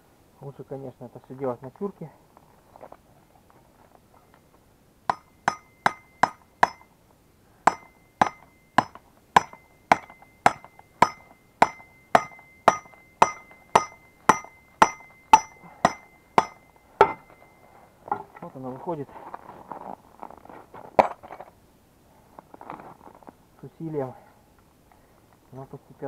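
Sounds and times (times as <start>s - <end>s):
hammer striking metal axle: 5.1s - 6.9s, 7.7s - 18.3s.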